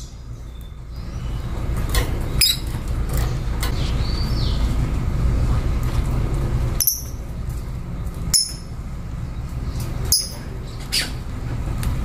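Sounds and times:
lovebirds chirping: 0:00.0 - 0:05.1, 0:06.7 - 0:07.2, 0:07.9 - 0:11.3
steady low rumble: 0:00.0 - 0:12.0.

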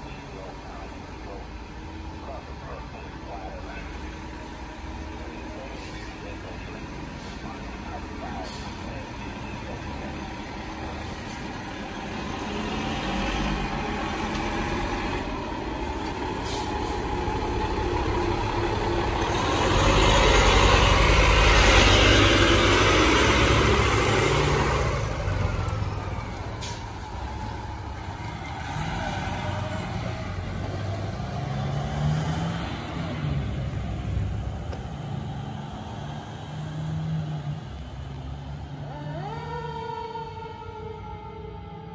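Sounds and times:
fire engine diesel driving past: 0:00.0 - 0:41.9.

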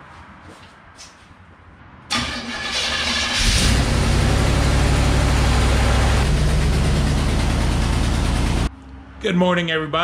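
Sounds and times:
car engine starting and idling: 0:02.1 - 0:08.7.

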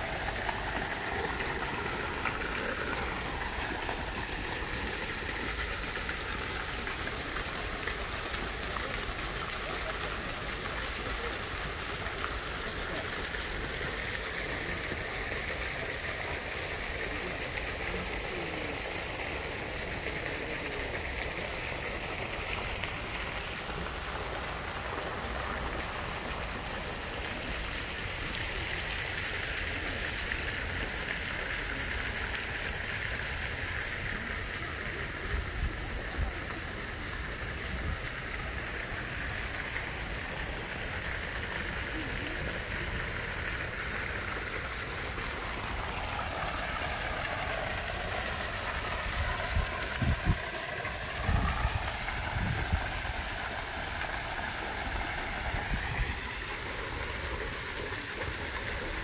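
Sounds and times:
stream flowing between rocks: 0:00.0 - 0:59.0.

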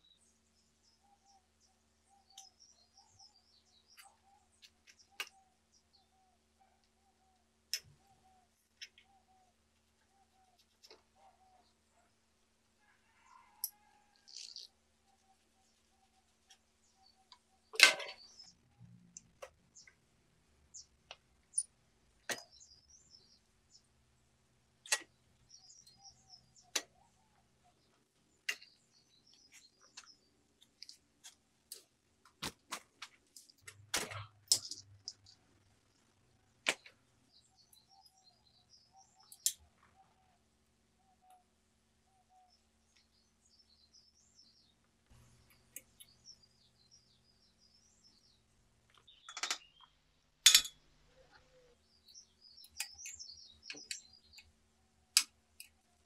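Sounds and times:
small birds chirping: 0:00.0 - 0:56.0
metallic clicks of bike parts: 0:17.3 - 0:18.5, 0:21.1 - 0:22.6, 0:24.8 - 0:26.0, 0:33.3 - 0:35.4, 0:39.2 - 0:39.6, 0:48.9 - 0:50.8, 0:52.6 - 0:54.5.

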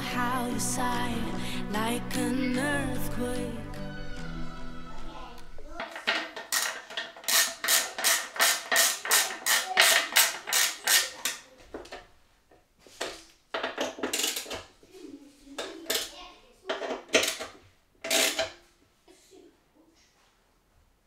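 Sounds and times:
ratchet tool clicking: 0:06.5 - 0:11.4.

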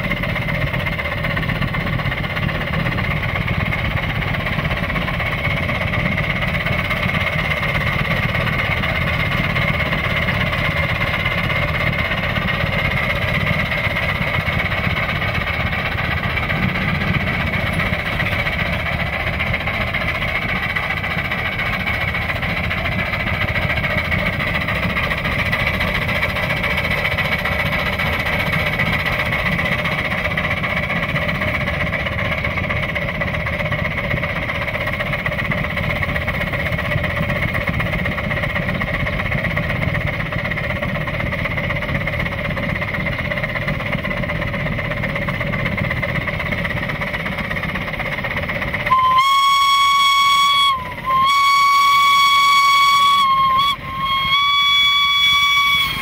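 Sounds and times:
steam locomotive exhaust barks: 0:00.0 - 0:56.0
wheels running on track: 0:00.0 - 0:56.0
steady high tone: 0:48.9 - 0:56.0.

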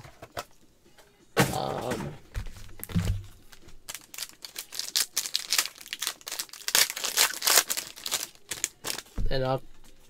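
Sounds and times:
foil wrapper crinkling and tearing: 0:02.8 - 0:09.2.

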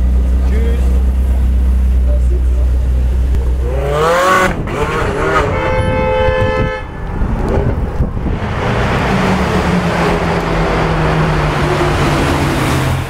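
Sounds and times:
car horn: 0:04.0 - 0:07.3
car engine accelerating in tunnel: 0:07.2 - 0:13.0.

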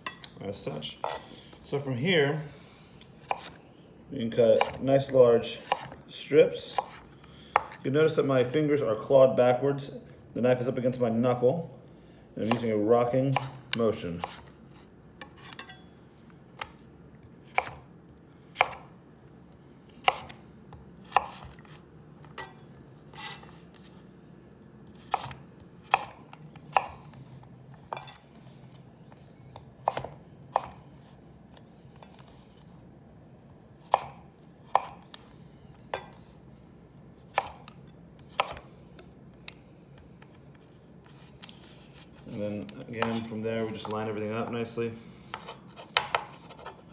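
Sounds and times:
knife chopping on wooden board: 0:03.2 - 0:03.6, 0:04.6 - 0:04.8, 0:05.6 - 0:06.0, 0:06.7 - 0:07.0, 0:13.3 - 0:14.5, 0:17.5 - 0:17.9, 0:18.6 - 0:18.9, 0:20.0 - 0:22.5, 0:25.0 - 0:27.0, 0:29.8 - 0:30.8, 0:33.8 - 0:35.2, 0:37.3 - 0:39.1, 0:42.9 - 0:43.3, 0:45.3 - 0:46.8.

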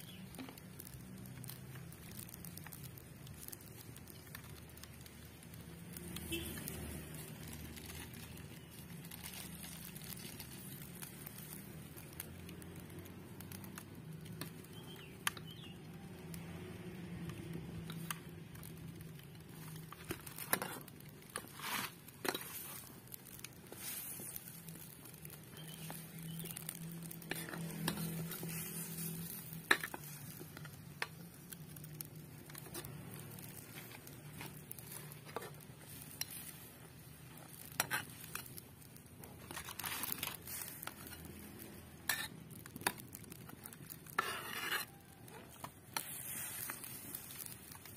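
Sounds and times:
metal spatula scraping a pan: 0:19.5 - 0:25.0, 0:25.6 - 0:30.8, 0:32.5 - 0:38.5, 0:39.3 - 0:41.3, 0:42.0 - 0:47.9.

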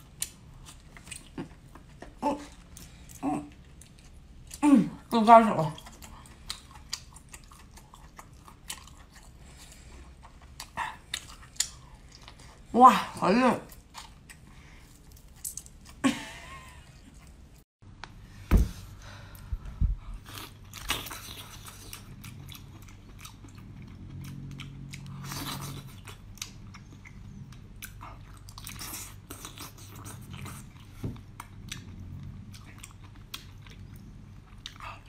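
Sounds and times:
wet chewing mouth sounds: 0:05.7 - 0:12.6, 0:20.1 - 0:35.0.

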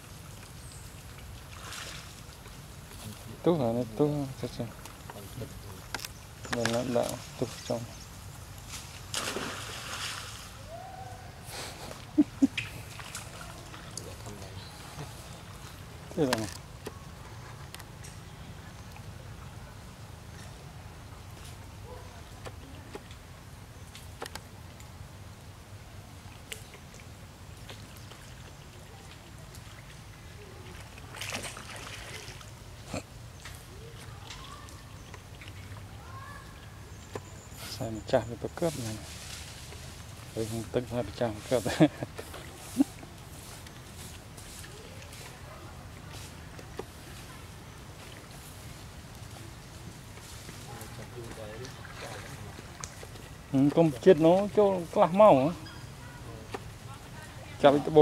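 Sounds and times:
monkeys splashing water: 0:00.0 - 0:03.4, 0:08.8 - 0:19.8, 0:25.9 - 0:37.7, 0:38.4 - 0:58.0
sharp slaps on water: 0:09.1 - 0:10.4.

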